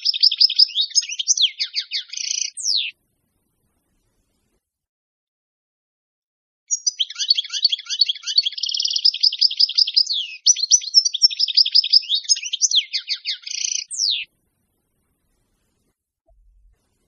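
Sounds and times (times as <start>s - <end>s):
goldfinch twittering song: 0.0s - 2.9s, 6.7s - 14.3s.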